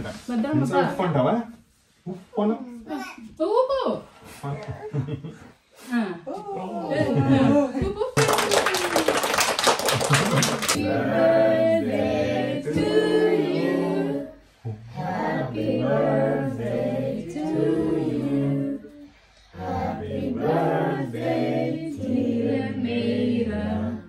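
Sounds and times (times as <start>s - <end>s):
group singing a celebration song: 9.0s - 24.0s.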